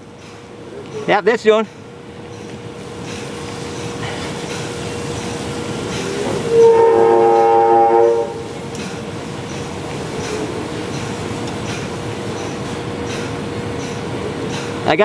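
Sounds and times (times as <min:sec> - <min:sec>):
loud multi-note horn: 0:06.4 - 0:08.5.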